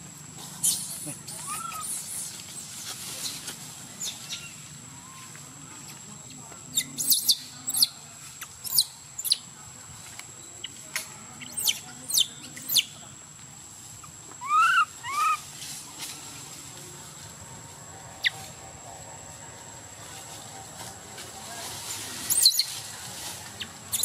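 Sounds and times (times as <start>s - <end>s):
high-pitched animal chirps: 14.4s - 15.4s.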